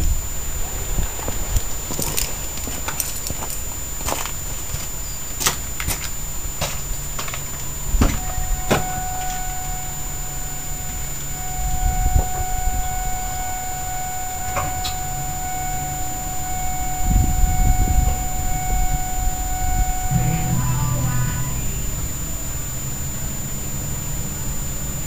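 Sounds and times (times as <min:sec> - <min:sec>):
high whine: 0:07.8 - 0:25.0.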